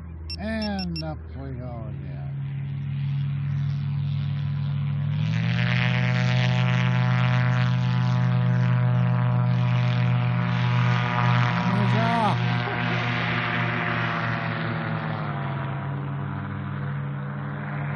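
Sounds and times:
gyrocopter engine and propeller: 0.0s - 17.9s.

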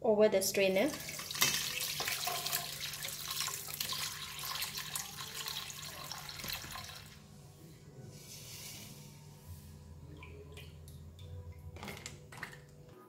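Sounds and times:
liquid pouring and splashing: 0.9s - 7.2s.

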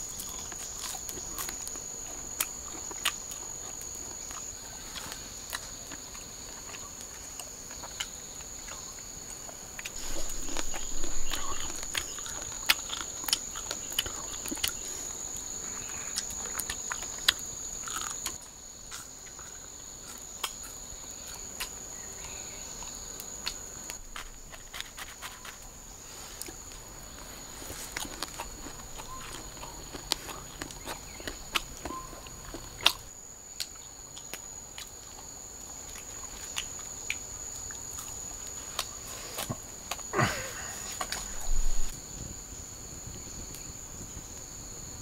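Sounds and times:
insects droning: 0.0s - 45.0s
rustling: 9.8s - 15.3s, 40.8s - 41.9s.

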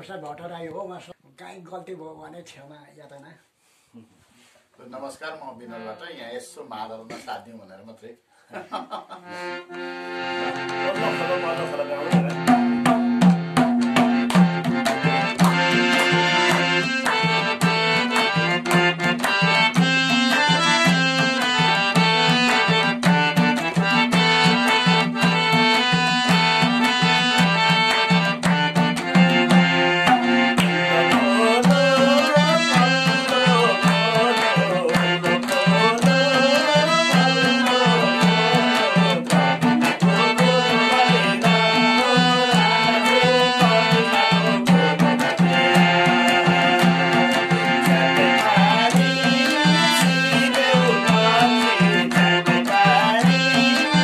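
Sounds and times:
harmonium: 9.1s - 54.0s
hand drum beat: 12.0s - 54.0s
hand claps: 12.1s - 54.0s
person singing: 27.8s - 54.0s.

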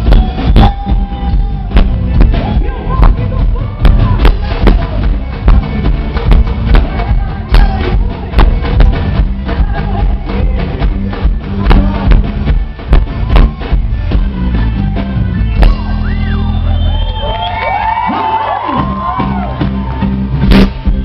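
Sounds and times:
electric bass: 0.0s - 21.0s
steady drum beat: 0.0s - 21.0s
person singing: 6.6s - 13.8s.

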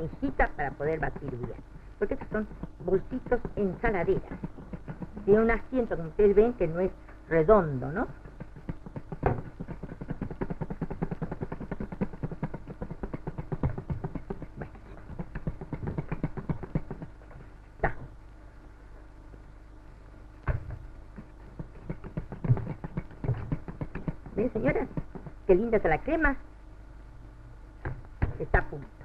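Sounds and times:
sharp knocks: 8.2s - 17.1s.

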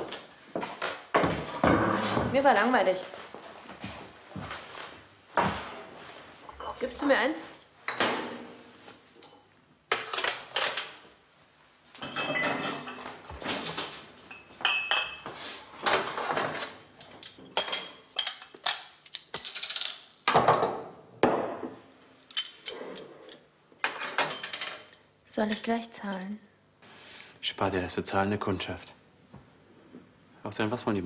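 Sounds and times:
glasses and dishes clinking: 12.0s - 13.2s, 14.3s - 15.3s.

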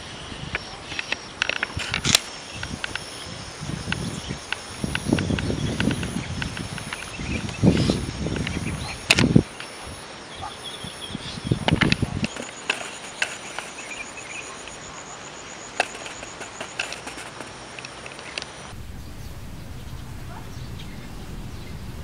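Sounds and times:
small clicks: 0.5s - 3.1s, 11.6s - 14.0s, 15.8s - 21.4s
faint high chirping: 2.6s - 17.5s, 18.2s - 22.0s
rustling: 11.7s - 14.1s, 15.8s - 22.0s.

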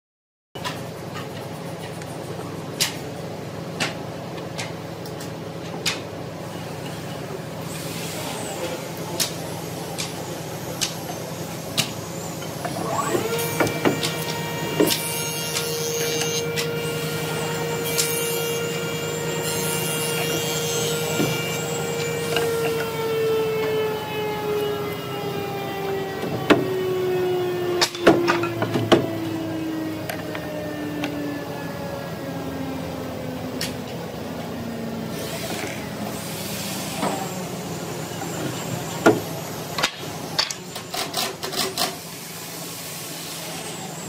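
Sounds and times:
woodworking machinery humming: 1.0s - 41.5s
high-pitched motor whine: 6.5s - 41.1s.

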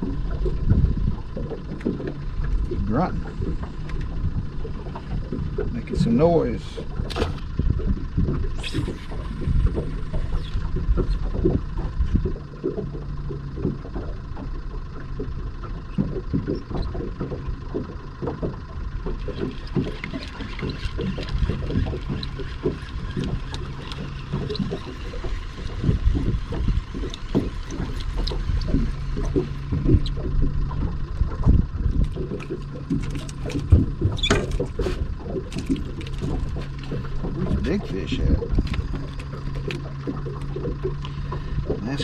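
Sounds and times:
water lapping against boat hull: 0.0s - 42.0s
wind buffeting microphone: 19.4s - 40.9s.

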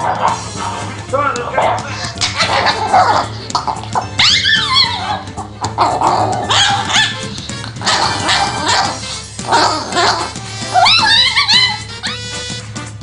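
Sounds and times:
background music: 0.0s - 13.0s
small dog snarling and barking: 1.6s - 7.2s, 7.8s - 12.2s.

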